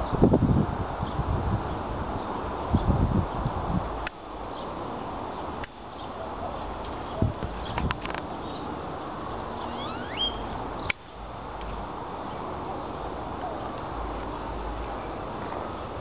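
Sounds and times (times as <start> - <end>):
wind rumbling on microphone: 0.0 - 8.6
bird chirping: 5.9 - 11.2.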